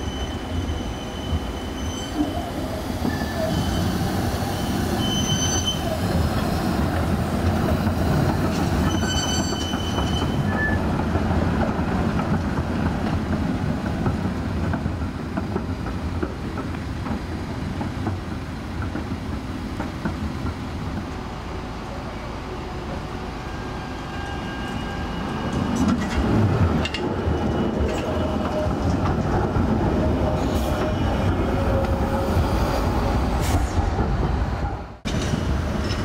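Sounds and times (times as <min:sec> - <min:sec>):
tram wheels rumbling on rails: 0:00.0 - 0:36.0
wheels squealing: 0:08.5 - 0:10.8.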